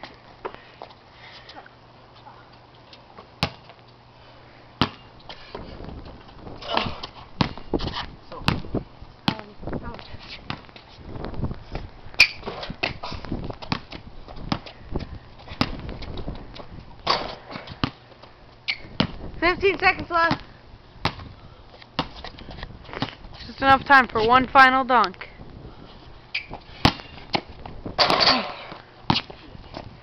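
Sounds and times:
basketball thudding on concrete: 3.4 - 3.8, 4.8 - 5.6, 6.6 - 9.6, 10.4 - 10.7, 12.2 - 16.3, 17.0 - 18.0, 18.8 - 21.3, 22.0 - 22.2, 26.8 - 29.9
basketball banging off hoop: 28.0 - 29.2.

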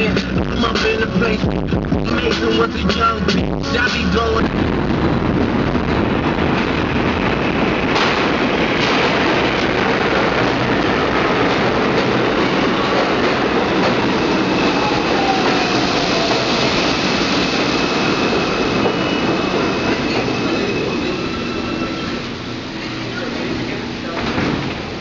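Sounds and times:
subway train wheels rumbling: 0.0 - 25.0
high wheel squeal: 12.3 - 23.8.

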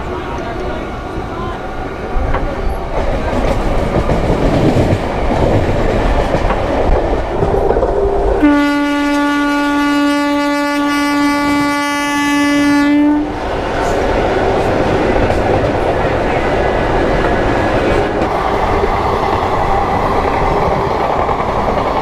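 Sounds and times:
train wheels running on track: 0.0 - 22.0
train horn blast: 8.0 - 13.4.

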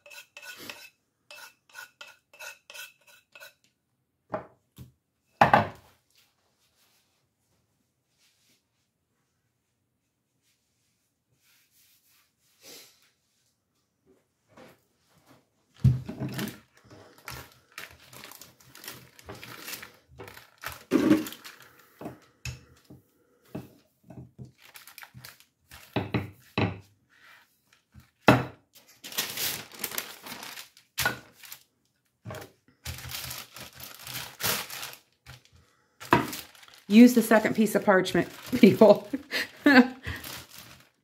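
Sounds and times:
parchment paper crinkling: 16.3 - 22.0, 24.5 - 26.0, 28.8 - 32.1, 32.8 - 41.0.

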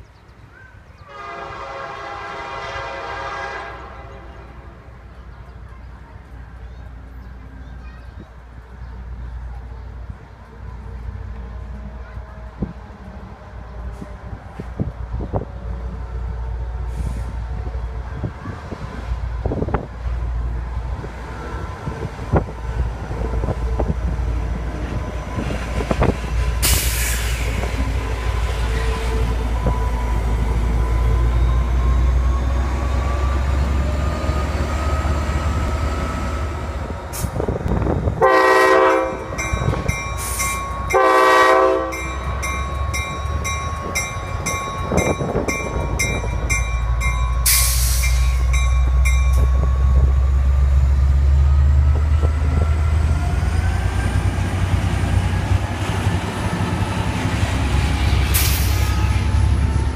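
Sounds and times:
diesel locomotive engine rumbling: 0.0 - 59.9
locomotive horn blasts: 1.1 - 4.9, 38.2 - 42.3
bell ringing: 39.3 - 41.1, 41.8 - 50.5.

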